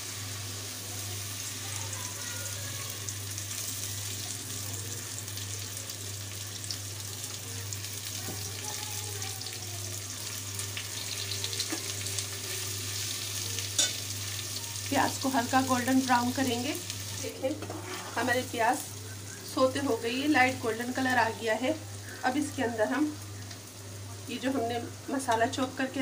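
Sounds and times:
onions sizzling in oil: 0.0s - 26.0s
spatula scraping pot: 17.5s - 18.4s.

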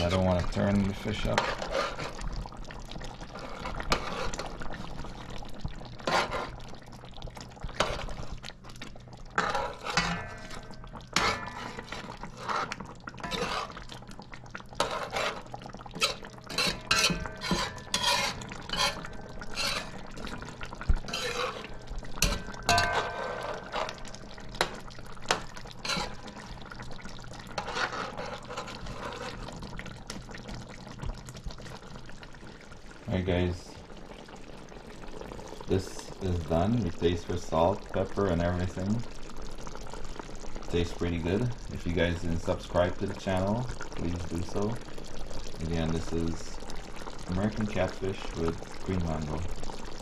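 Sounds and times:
metal spoon scraping pot: 1.2s - 2.2s, 3.3s - 4.5s, 6.0s - 6.6s, 9.4s - 13.8s, 14.8s - 26.5s, 27.5s - 29.5s
sauce sloshing: 1.2s - 32.5s.

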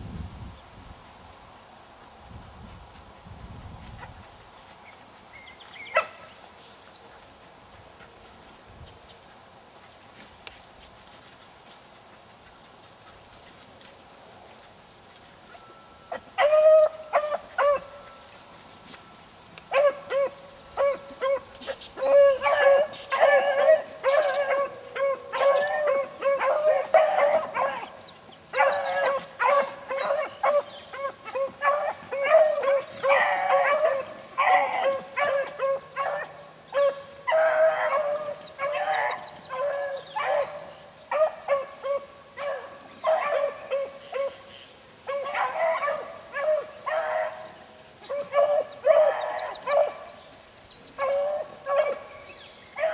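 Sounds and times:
dogs baying: 19.7s - 44.5s.

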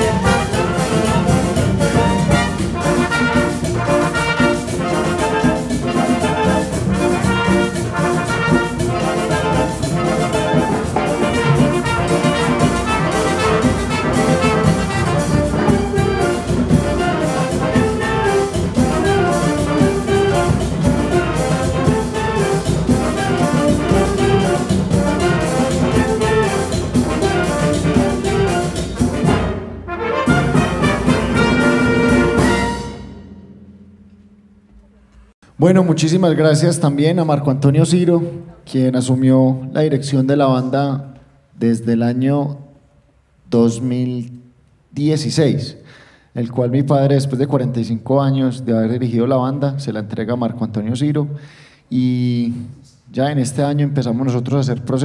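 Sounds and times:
wind band playing lively piece: 0.0s - 33.3s.

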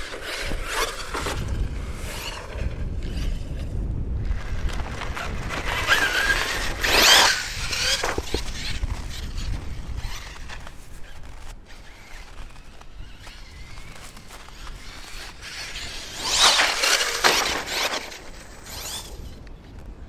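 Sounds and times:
electric motor whining: 4.4s - 19.5s.

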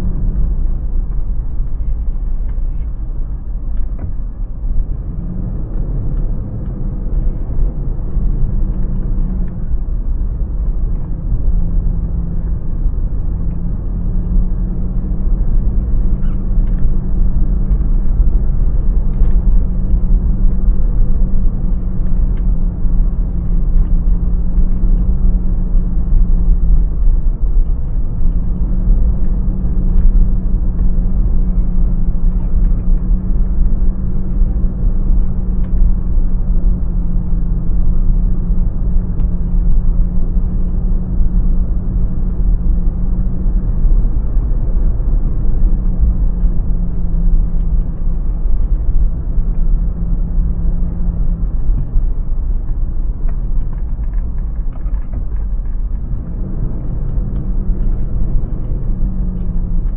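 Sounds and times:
car engine hum: 0.0s - 59.9s
tyre road rumble: 0.0s - 59.9s.

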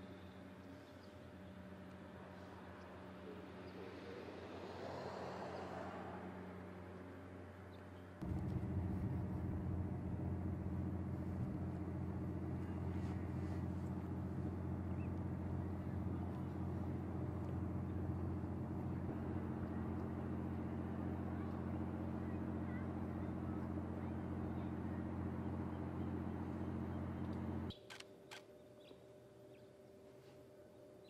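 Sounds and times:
car engine idling: 8.2s - 27.7s.

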